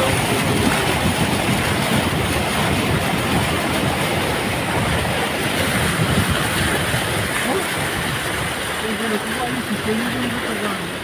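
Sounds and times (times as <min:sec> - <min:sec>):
water rushing from wheels: 0:00.0 - 0:11.0.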